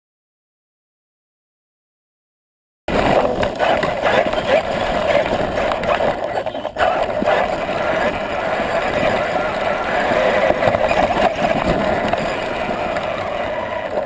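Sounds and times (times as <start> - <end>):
rc truck motor: 2.9 - 14.0
wind: 2.9 - 14.0.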